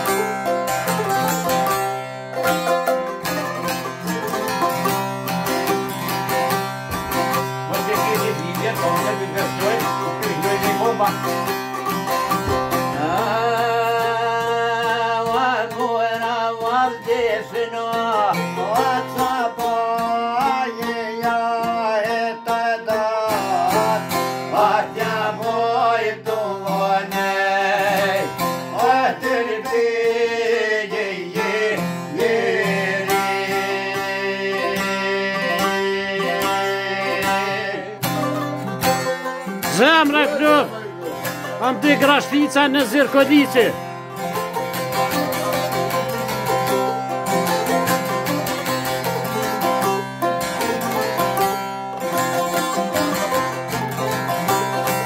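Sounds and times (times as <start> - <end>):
plucked lutes playing folk tune: 0.0 - 55.0
man singing: 6.0 - 11.5, 12.3 - 43.9.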